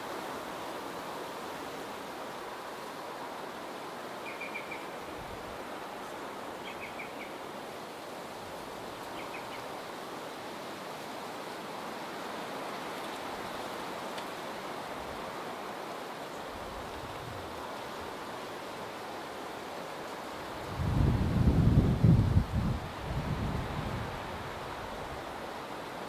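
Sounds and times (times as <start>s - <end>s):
small bird calling: 4.2s - 5.0s, 6.6s - 7.4s, 9.1s - 9.7s
strong wind rushing: 20.6s - 24.8s.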